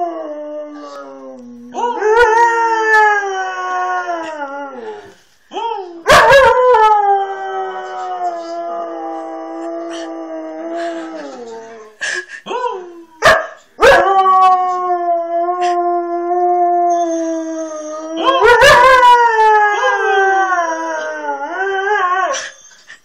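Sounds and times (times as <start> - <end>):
husky howling: 13.8 - 22.4.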